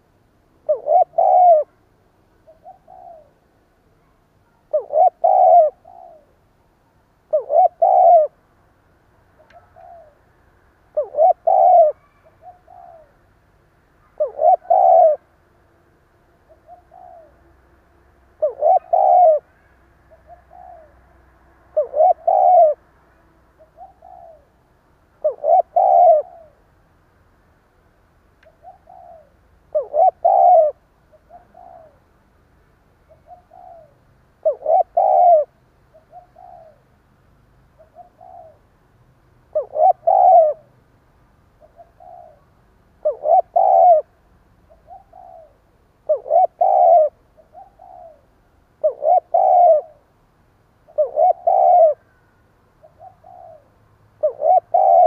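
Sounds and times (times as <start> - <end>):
dove cooing: 0.6 - 3.4, 4.4 - 6.5, 7.3 - 8.4, 9.4 - 10.2, 10.9 - 13.2, 14.0 - 15.3, 16.5 - 17.5, 18.4 - 21.1, 21.7 - 22.9, 23.6 - 24.6, 25.2 - 26.7, 28.5 - 32.0, 33.1 - 36.9, 37.8 - 38.7, 39.5 - 40.8, 41.6 - 50.2, 50.9 - 52.2, 52.8 - 55.0.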